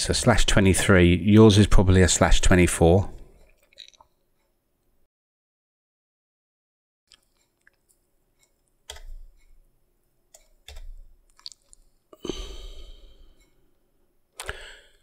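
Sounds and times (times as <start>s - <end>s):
keyboard keystrokes: 8.9s - 9.3s, 10.3s - 11.1s.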